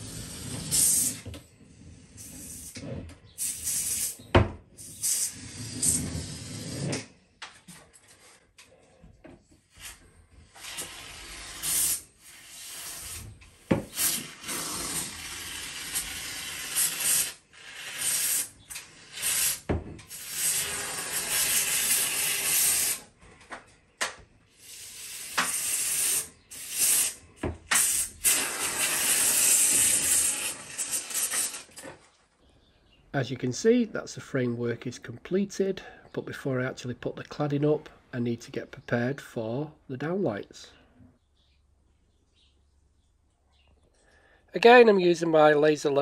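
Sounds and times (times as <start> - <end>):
aerosol foam spraying hiss: 3.4 - 4.2, 24.6 - 31.6.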